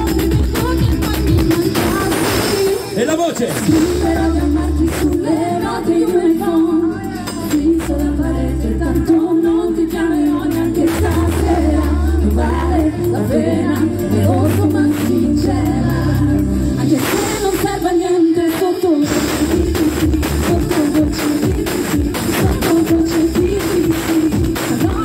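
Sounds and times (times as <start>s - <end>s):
women singing into microphones: 0.0s - 3.0s, 3.7s - 25.0s
bass line: 0.0s - 25.0s.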